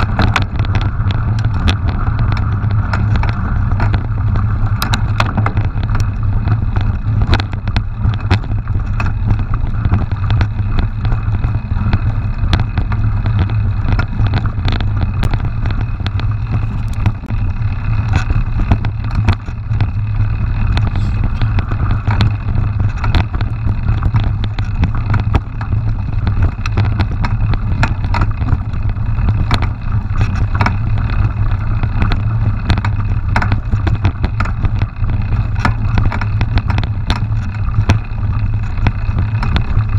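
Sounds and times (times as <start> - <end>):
bike rattling over bumps: 0.0 - 39.9
wind rumble on microphone: 0.0 - 39.9.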